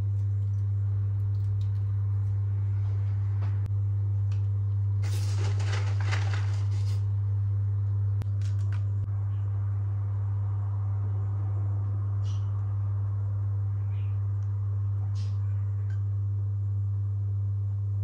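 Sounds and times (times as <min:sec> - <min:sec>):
steady low hum: 0:00.0 - 0:18.0
rustling scraping noise: 0:05.0 - 0:07.1.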